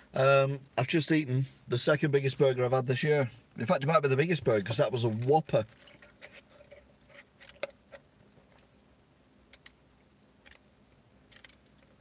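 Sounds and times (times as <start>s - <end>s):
small clicks: 9.5s - 9.8s, 10.4s - 10.7s, 11.3s - 12.0s.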